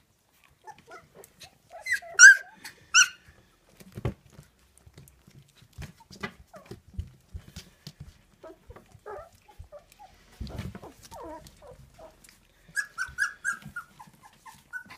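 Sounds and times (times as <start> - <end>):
puppies chewing kibble: 0.0 - 14.9
puppy yelps: 0.6 - 3.2, 8.4 - 14.9.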